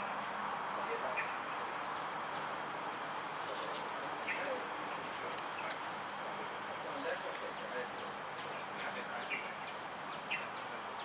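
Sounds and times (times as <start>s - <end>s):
background hiss: 0.0s - 11.0s
insects whining: 0.0s - 11.0s.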